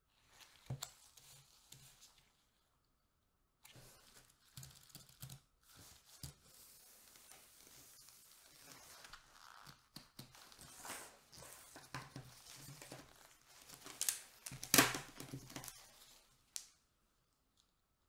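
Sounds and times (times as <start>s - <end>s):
disposable gloves rustling: 5.6s - 16.8s.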